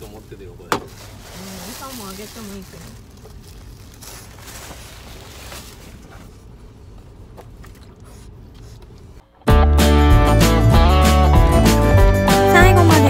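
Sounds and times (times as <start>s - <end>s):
faint rustles: 0.9s - 9.2s.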